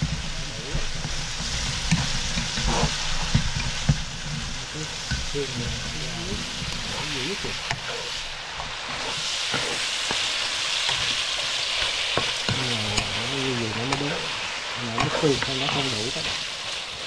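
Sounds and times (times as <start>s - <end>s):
ribs sizzling in a pan: 0.0s - 17.0s.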